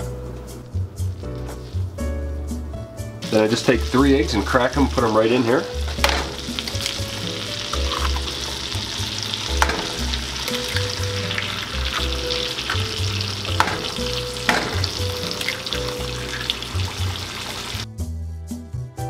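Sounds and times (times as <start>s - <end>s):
butter and eggs sizzling in a pan: 3.2s - 17.8s
eggs cracking on a pan: 5.8s - 17.8s.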